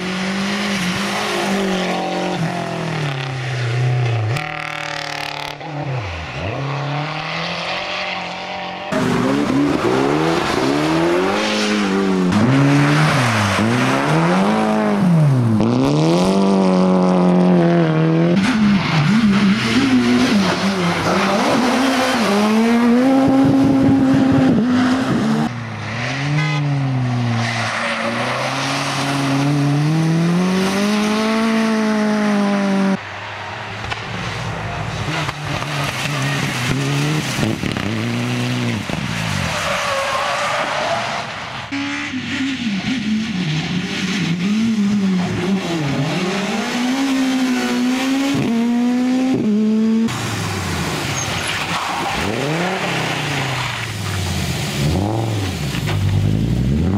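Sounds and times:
rally cars revving past: 0.0s - 33.0s.

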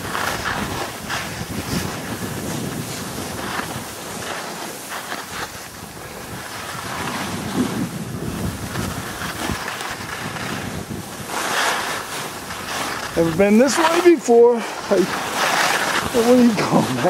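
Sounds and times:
skis scraping on snow: 0.0s - 17.0s
wind rushing over microphone: 0.0s - 17.0s.

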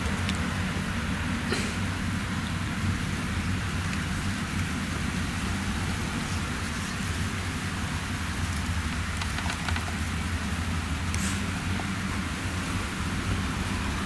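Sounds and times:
low engine drone: 0.0s - 14.0s
hiss-like machinery rush: 1.4s - 14.0s
faint clicks: 9.1s - 10.0s.

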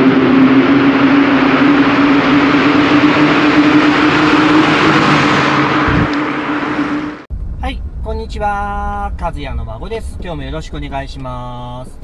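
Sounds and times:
tyre and road noise: 0.0s - 8.7s
car engine running: 0.0s - 12.0s.

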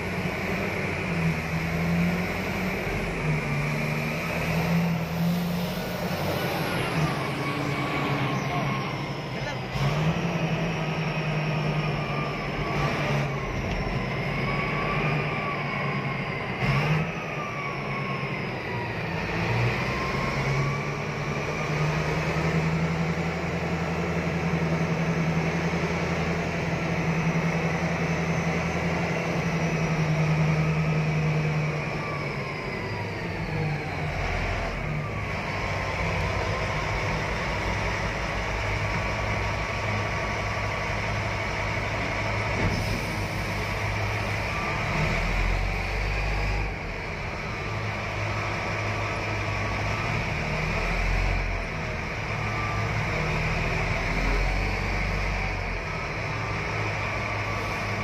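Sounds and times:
diesel engine drone in cab: 0.0s - 58.0s
high engine whine: 0.0s - 58.0s.

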